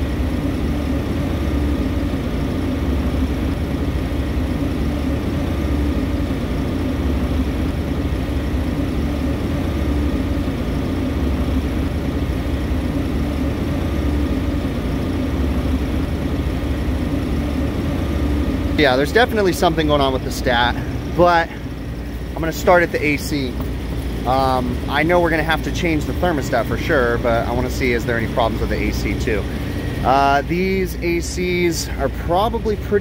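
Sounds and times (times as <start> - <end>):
steady tone: 0.0 - 32.9
machinery humming: 0.0 - 33.0.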